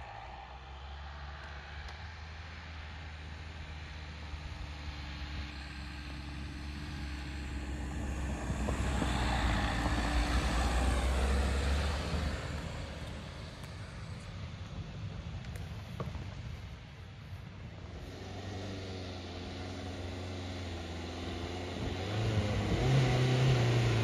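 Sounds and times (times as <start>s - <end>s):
diesel engine driving past: 0.0s - 15.2s, 17.8s - 24.0s.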